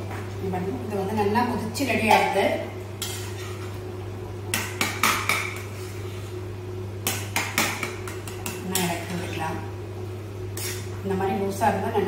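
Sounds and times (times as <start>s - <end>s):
steady low hum: 0.0s - 12.0s
spoon scraping a metal pan: 3.0s - 3.6s, 10.6s - 10.9s.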